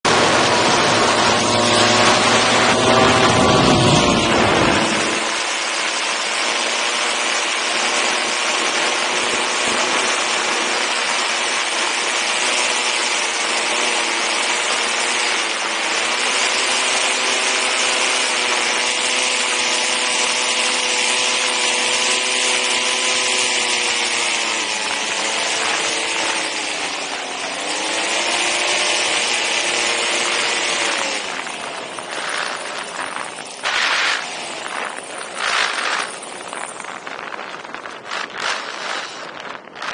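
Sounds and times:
paramotor engine and propeller: 0.0s - 39.9s
rush of air: 0.1s - 6.5s, 31.0s - 39.9s
wind buffeting on microphone: 0.1s - 12.4s, 27.6s - 39.9s.

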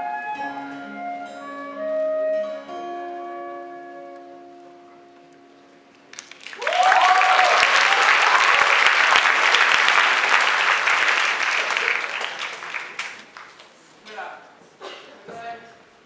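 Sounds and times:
audience applauding: 6.1s - 13.8s
cheering shouts: 6.6s - 9.1s.

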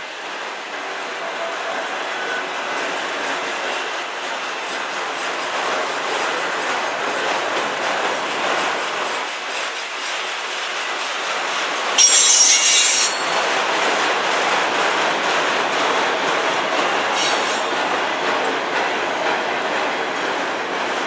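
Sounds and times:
train wheels rolling on rails: 0.0s - 21.0s
high-pitched wheel squeal: 12.0s - 13.3s.

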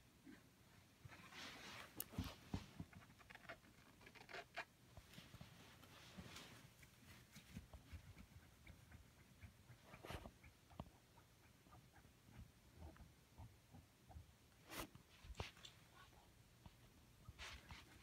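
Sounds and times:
faint rustling: 0.7s - 11.0s.

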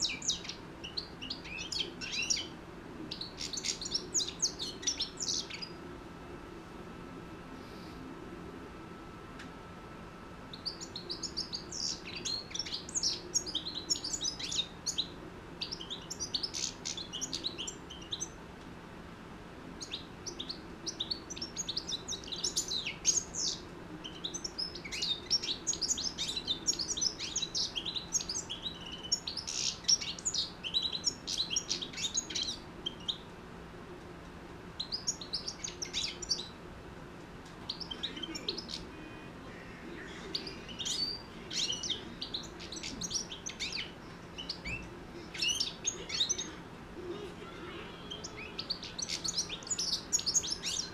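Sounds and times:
goldfinch twittering song: 0.0s - 2.5s, 3.1s - 5.8s, 10.5s - 18.4s, 19.8s - 33.3s, 40.3s - 46.4s, 48.1s - 50.9s.

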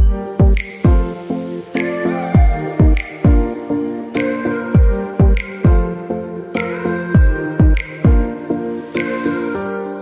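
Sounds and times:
deep kick drum: 0.0s - 1.1s, 2.4s - 3.5s, 4.8s - 5.9s, 7.2s - 8.3s.

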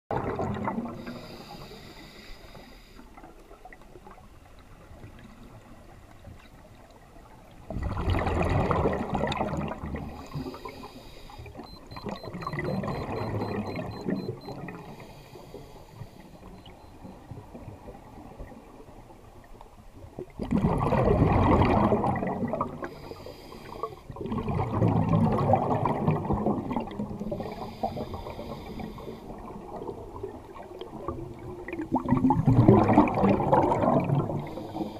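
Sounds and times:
exhaled bubbles rushing: 0.1s - 1.2s, 7.7s - 10.3s, 11.9s - 14.7s, 20.2s - 22.9s, 24.1s - 27.6s, 29.3s - 34.6s
diver breathing through regulator: 1.0s - 3.1s, 10.1s - 11.7s, 14.8s - 16.7s, 22.8s - 24.0s, 27.3s - 29.4s, 34.4s - 34.9s.

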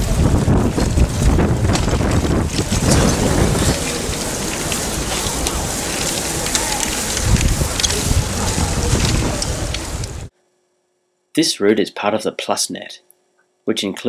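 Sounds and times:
bike clicks and rattles: 0.0s - 10.3s
wind buffeting microphone: 0.0s - 10.3s.

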